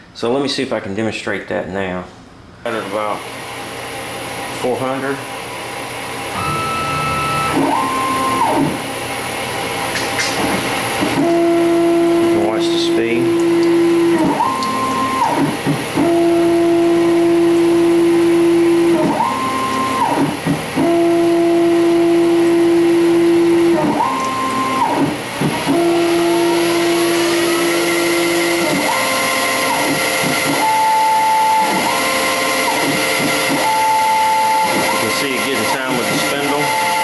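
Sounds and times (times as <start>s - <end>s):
lathe spindle whine: 5.4s - 9.8s, 25.6s - 37.0s
stepper motors whirring: 6.3s - 9.0s.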